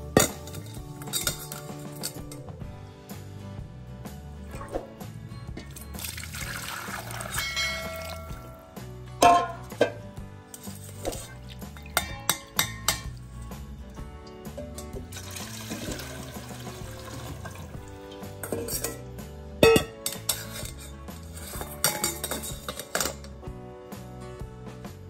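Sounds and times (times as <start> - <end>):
metal sieve and bowl clinking: 0.0 - 2.5, 5.6 - 8.6, 9.2 - 13.6, 14.4 - 23.4
background music: 0.0 - 25.0
liquid pouring through strainer: 5.7 - 8.5, 14.9 - 18.2.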